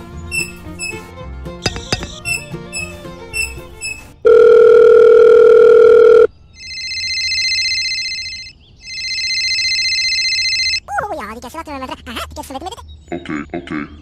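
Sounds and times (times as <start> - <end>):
light plucked music: 0.0 - 4.2
telephone ringing: 4.2 - 10.8.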